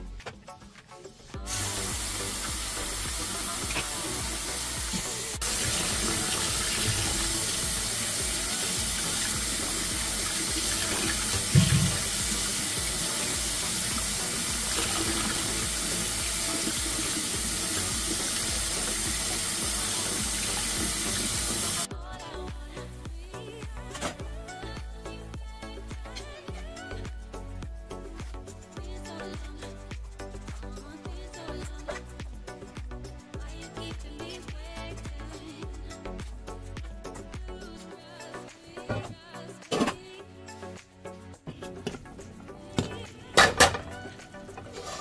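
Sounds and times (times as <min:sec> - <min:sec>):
tap water running into steel bowl: 0:01.7 - 0:21.9.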